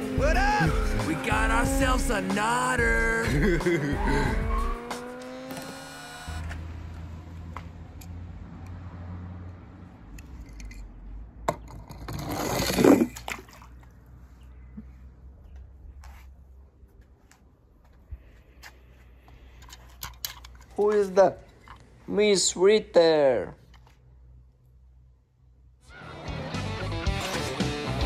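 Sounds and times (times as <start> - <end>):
toy car rushing down slide: 11.8 - 13.2
splash into water: 12.7 - 13.9.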